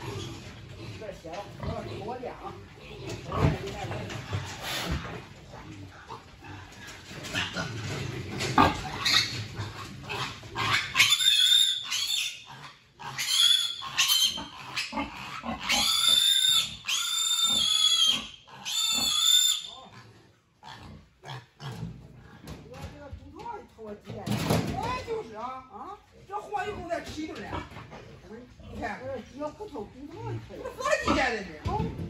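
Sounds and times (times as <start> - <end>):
piglet squealing: 8.9 - 9.4, 10.6 - 19.9
knocks and clatter: 21.8 - 25.1.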